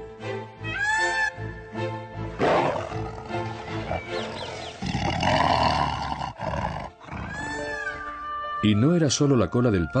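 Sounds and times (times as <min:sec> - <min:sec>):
dramatic background music: 0:00.0 - 0:09.3
tiger roaring: 0:02.4 - 0:07.6.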